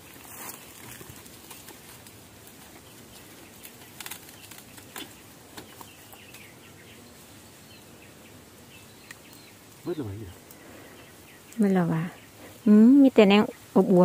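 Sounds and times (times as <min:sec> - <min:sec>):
dry bamboo crackling and rustling: 0:00.0 - 0:14.0
bamboo shoots snapping: 0:03.3 - 0:06.4.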